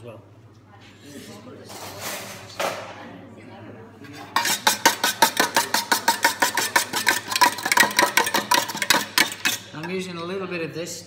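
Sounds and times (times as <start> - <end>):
fork beating egg in metal pan: 4.2 - 10.1.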